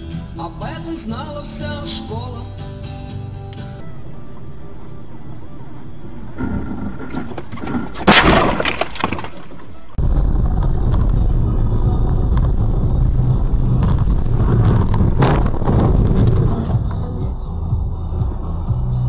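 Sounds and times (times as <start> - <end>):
car engine rumble and road noise: 0.0 - 8.9, 9.6 - 19.0
loud crash impact: 8.0 - 9.3.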